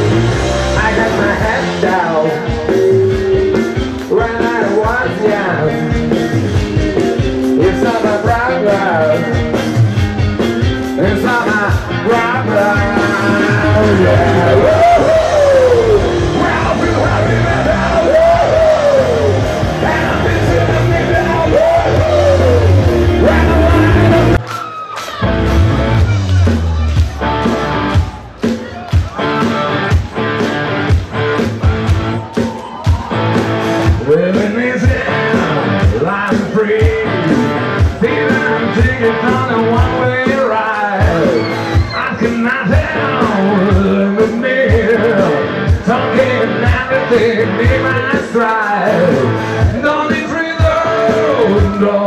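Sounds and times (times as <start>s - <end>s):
drum beat: 0.0s - 52.0s
electric guitar: 0.0s - 52.0s
live rock band: 0.0s - 52.0s
person singing: 10.8s - 24.4s, 33.9s - 52.0s.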